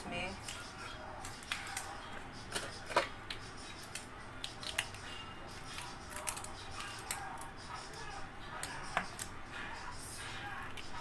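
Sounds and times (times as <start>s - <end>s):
kitchen items clicking and tapping: 1.3s - 5.0s.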